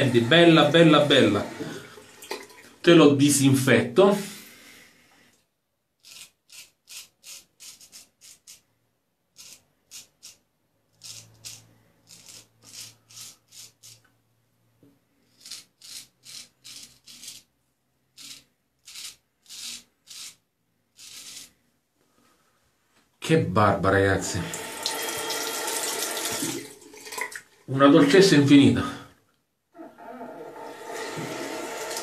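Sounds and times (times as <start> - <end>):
razor scraping stubble: 6.0 - 8.6, 9.3 - 14.1, 15.2 - 17.5, 18.1 - 21.6.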